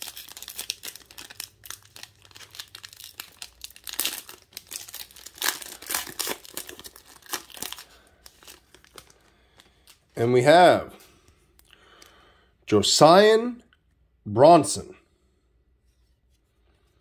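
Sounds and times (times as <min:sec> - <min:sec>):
foil wrapper tearing: 0:00.0 - 0:10.0
foil wrapper crinkling: 0:00.0 - 0:10.2.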